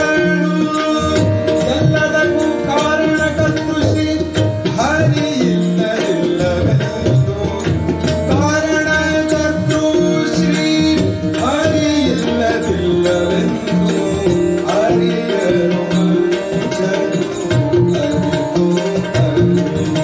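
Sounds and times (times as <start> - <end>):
harmonium held notes: 0.0 - 20.0
tabla strokes: 0.0 - 20.0.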